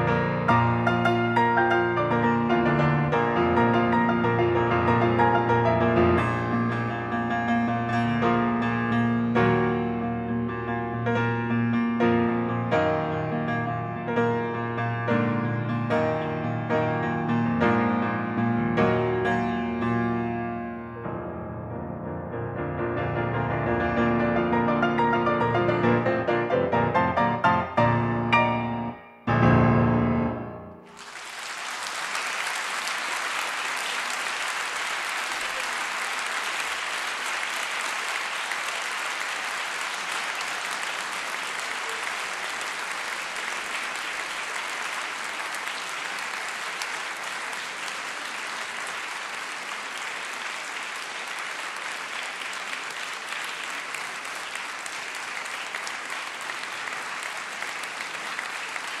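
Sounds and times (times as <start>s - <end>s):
audience applause: 0.0s - 11.5s, 23.2s - 28.5s, 30.8s - 59.0s
piano chords: 0.0s - 31.0s.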